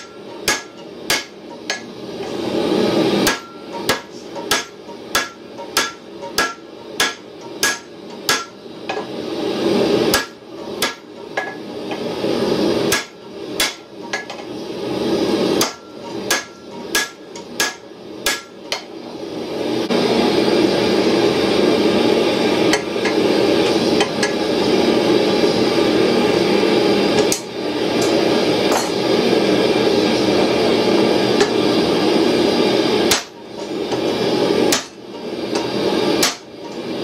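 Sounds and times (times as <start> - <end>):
hammer striking hot steel on anvil: 0.0 - 2.4, 3.1 - 9.1, 10.0 - 12.1, 12.8 - 14.5, 15.5 - 19.0, 22.7 - 24.5, 27.2 - 29.1, 31.4 - 31.6, 33.0 - 36.9.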